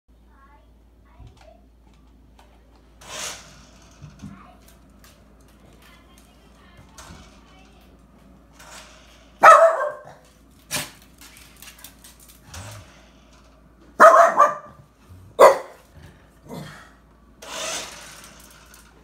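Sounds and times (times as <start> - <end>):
small dog barking: 9.4 - 10.2, 14.0 - 14.8, 15.4 - 15.8.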